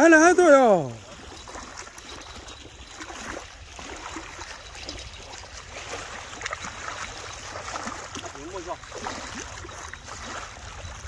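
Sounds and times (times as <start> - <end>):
small waves lapping: 0.0 - 11.0
wind rumble on microphone: 8.8 - 11.0.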